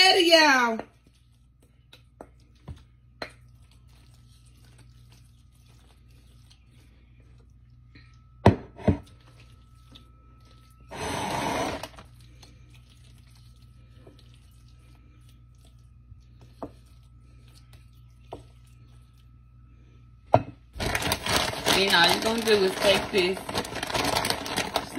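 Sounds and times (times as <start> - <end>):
pasta scraped from bowl: 10.9 - 12.0.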